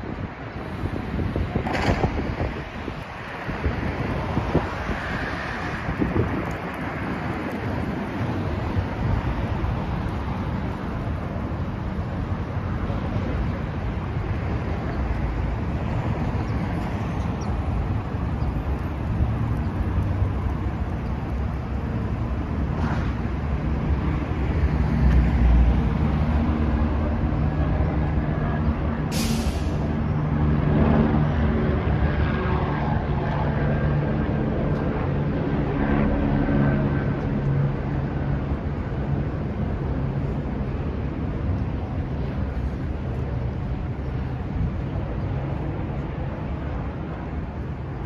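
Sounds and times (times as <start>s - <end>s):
cars passing: 0.0s - 48.0s
short high hiss: 29.1s - 29.8s.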